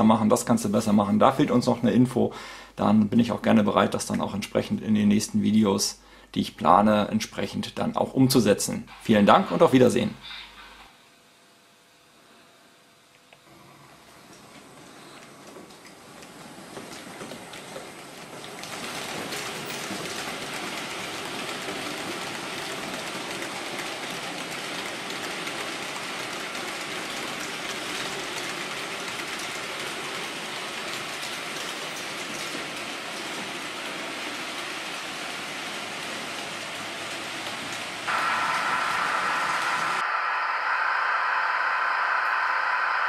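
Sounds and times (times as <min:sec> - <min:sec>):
model train wheels rattling on rail: 0:14.6 - 0:40.0
loud whining sound: 0:38.1 - 0:43.0.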